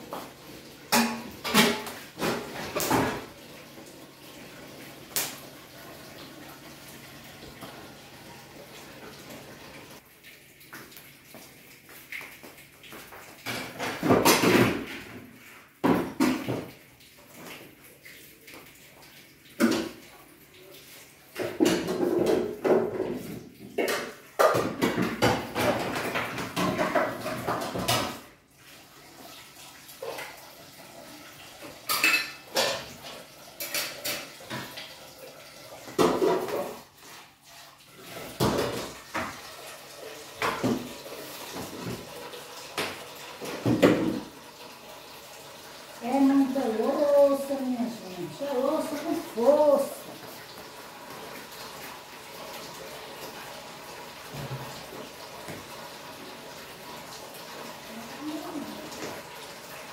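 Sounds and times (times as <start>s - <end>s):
tap water running: 0.0s - 59.9s
dishes clinking and clattering: 0.9s - 3.4s, 13.1s - 15.2s, 15.8s - 16.8s, 19.6s - 20.0s, 21.3s - 28.2s, 31.6s - 35.0s, 35.9s - 36.9s, 38.0s - 39.5s, 40.3s - 44.4s.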